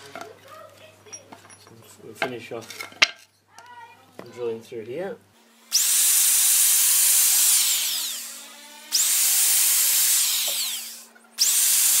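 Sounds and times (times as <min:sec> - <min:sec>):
electric drill whining: 0:05.4 - 0:12.0.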